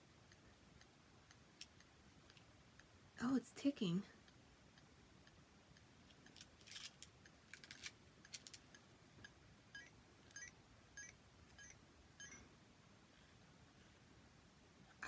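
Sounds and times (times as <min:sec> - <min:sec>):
electronic toy beeps: 0:09.7 - 0:12.5.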